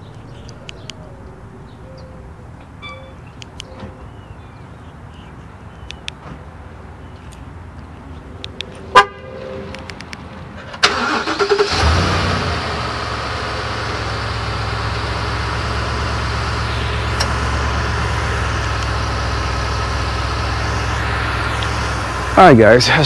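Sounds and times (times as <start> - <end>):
truck engine starting and idling: 9.7 - 23.0.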